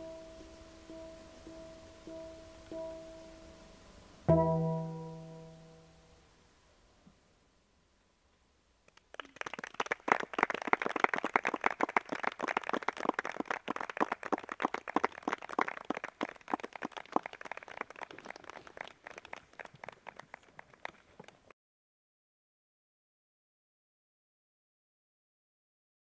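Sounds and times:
audience applauding: 0:08.9 - 0:21.5.

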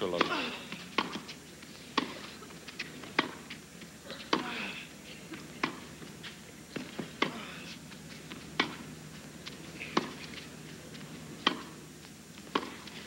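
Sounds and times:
racket hitting tennis ball: 0:00.2 - 0:01.3, 0:01.9 - 0:02.3, 0:03.0 - 0:03.4, 0:06.8 - 0:07.5, 0:08.6 - 0:08.9, 0:09.9 - 0:10.2, 0:11.4 - 0:11.8, 0:12.4 - 0:13.0
tennis ball bouncing: 0:00.2 - 0:03.5, 0:04.2 - 0:04.6, 0:05.3 - 0:05.9, 0:08.3 - 0:08.9, 0:09.9 - 0:10.3, 0:11.4 - 0:11.8, 0:12.4 - 0:13.0.

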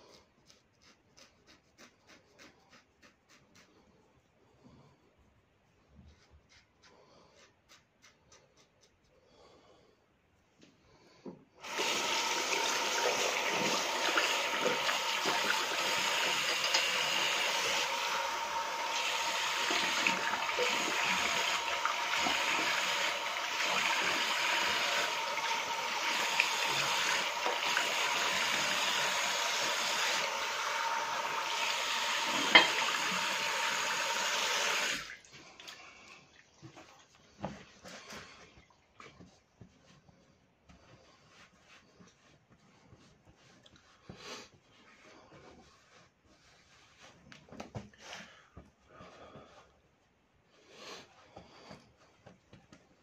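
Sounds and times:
sink tap running: 0:11.6 - 0:35.1.

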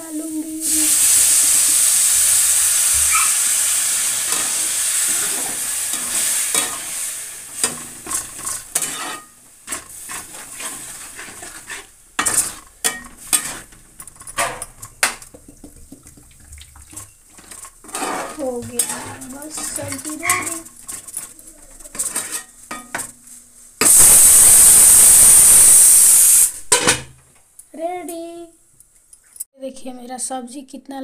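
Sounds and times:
water sizzling in hot oil: 0:00.0 - 0:26.8
metal spatula scraping a pan: 0:01.0 - 0:15.2, 0:16.8 - 0:24.5.

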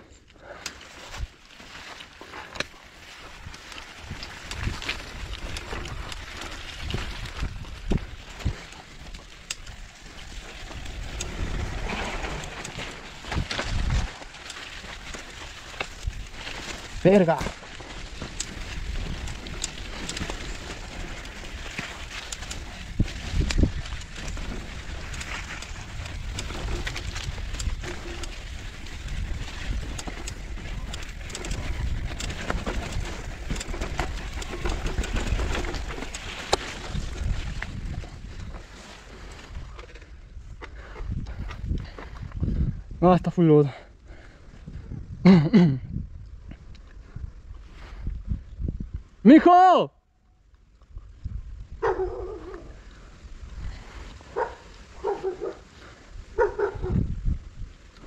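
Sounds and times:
bike tyres rolling over dirt: 0:00.0 - 0:49.5, 0:50.3 - 0:58.0
bike chain and frame clicks: 0:02.5 - 0:17.2, 0:17.8 - 0:38.6.

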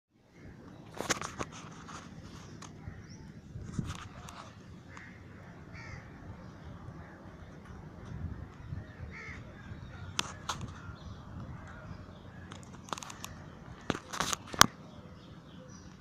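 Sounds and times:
wind rumble on microphone: 0:00.4 - 0:16.0.

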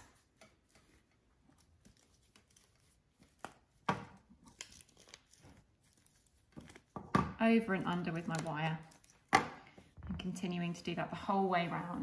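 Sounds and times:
moss rustling and tearing: 0:01.5 - 0:03.8.

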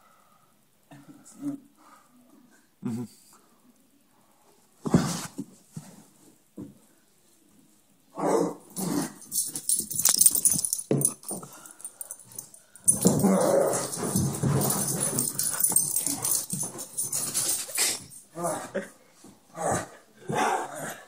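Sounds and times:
dog growling and whining: 0:12.9 - 0:16.4.

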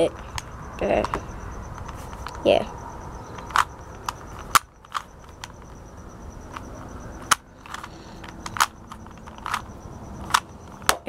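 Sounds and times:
puzzle cube clicking: 0:03.3 - 0:05.7, 0:07.2 - 0:11.0.

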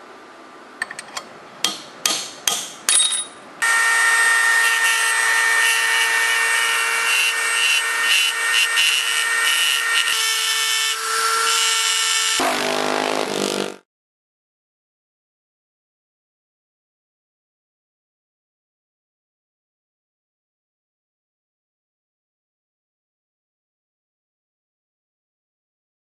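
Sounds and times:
rotary grinder whining: 0:03.6 - 0:13.8.

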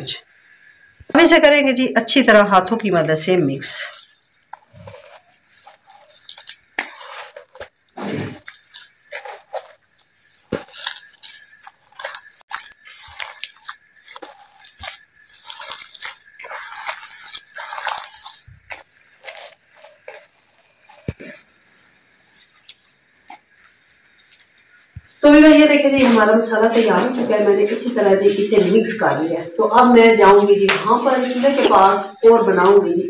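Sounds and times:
hands squeezing sticky mixture: 0:02.8 - 0:27.2.

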